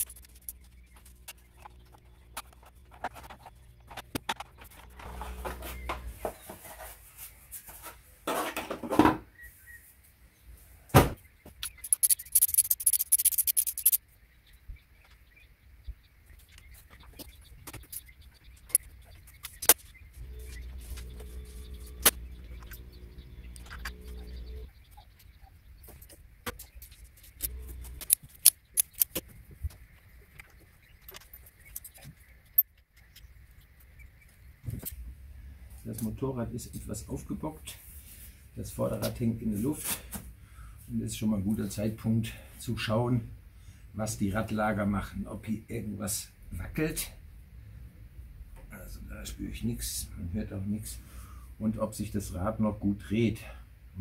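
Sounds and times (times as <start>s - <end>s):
rapid high-pitched clicking: 0.0s - 2.0s, 11.6s - 14.0s, 27.3s - 29.2s
scraping rustle: 0.0s - 9.0s.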